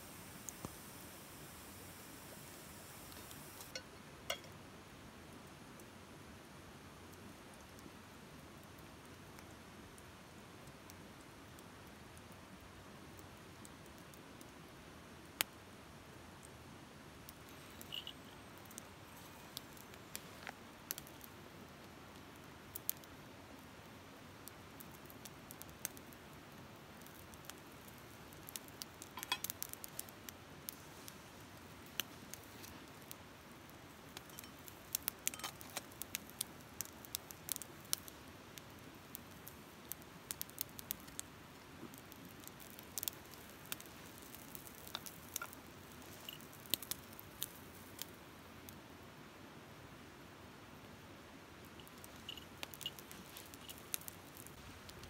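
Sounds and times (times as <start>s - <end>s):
faint steady hiss: 0.0s - 55.0s
campfire crackling and popping: 0.1s - 4.6s, 7.2s - 15.6s, 17.2s - 48.8s, 51.6s - 55.0s.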